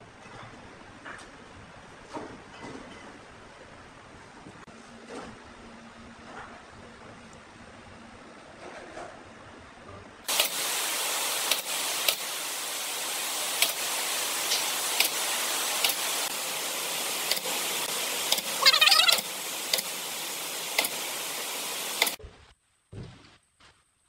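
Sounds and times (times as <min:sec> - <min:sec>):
pneumatic nail gun firing: 0:10.3 - 0:16.4, 0:17.0 - 0:18.6, 0:19.6 - 0:20.0, 0:20.7 - 0:22.2
steady air hiss: 0:10.3 - 0:22.2.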